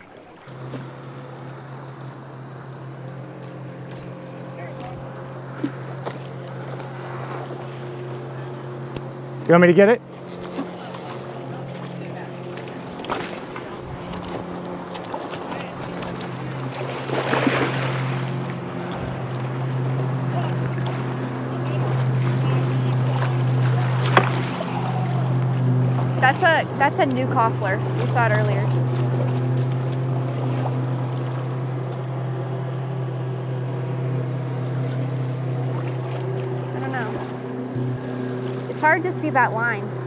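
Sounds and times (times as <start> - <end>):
boat motor droning: 0.0 - 40.0
river current rushing: 0.0 - 40.0
net splashing into water: 13.0 - 18.6, 22.1 - 25.2.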